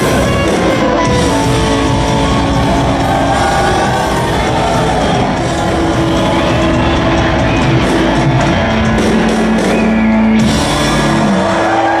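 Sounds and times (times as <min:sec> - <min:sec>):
live rock band playing: 0:00.0 - 0:12.0.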